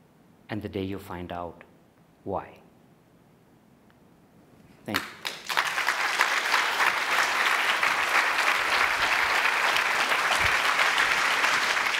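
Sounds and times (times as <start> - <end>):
audience applauding: 5.0 - 11.9.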